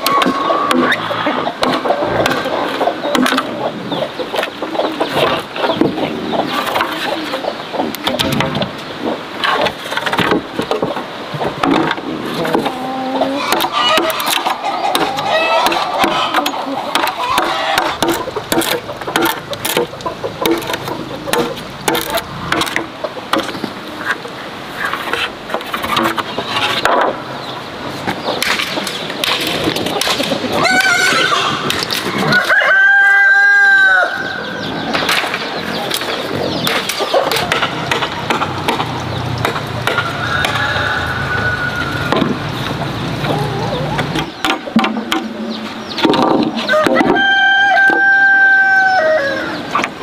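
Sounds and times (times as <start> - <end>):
knife chipping bamboo: 13.5 - 23.5
rooster crowing: 32.3 - 34.4, 40.0 - 42.2, 46.7 - 49.6.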